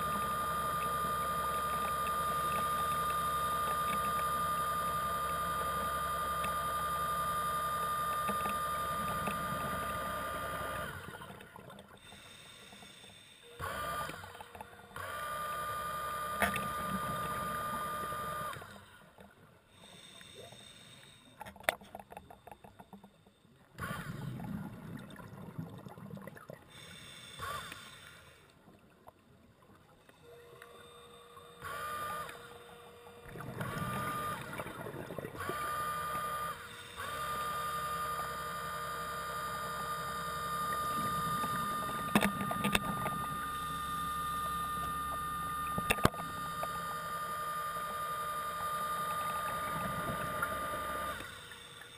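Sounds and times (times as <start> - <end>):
underwater scooter motor whining: 0.0 - 51.9
irregular underwater rumbling: 21.8 - 27.1, 28.6 - 36.4, 40.6 - 51.2.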